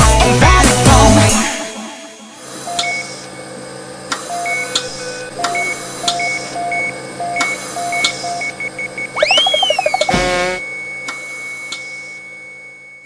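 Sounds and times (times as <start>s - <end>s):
short electronic beeps: 9.2s - 10.6s.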